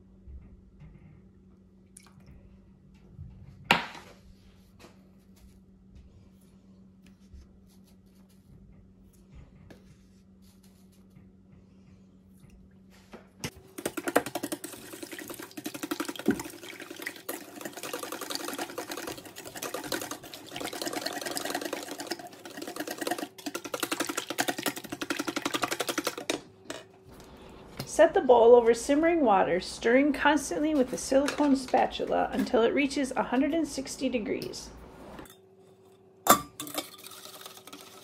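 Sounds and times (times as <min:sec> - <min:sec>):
whisk beating eggs in metal bowl: 0:13.7 - 0:26.4, 0:36.6 - 0:38.0
faint steady hum: 0:25.0 - 0:37.9.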